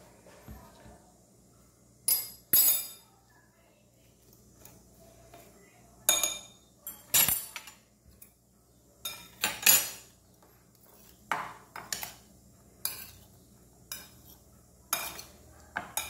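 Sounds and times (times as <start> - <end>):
metal spoon clinking on glass bowl: 6.1 - 7.8, 12.8 - 13.2, 13.9 - 16.0.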